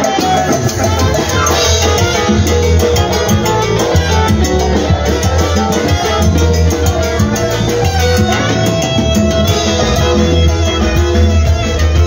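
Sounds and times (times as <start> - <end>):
drums playing dance beat: 0.0 - 12.0
electric bass: 0.0 - 12.0
saxophones: 0.0 - 12.0.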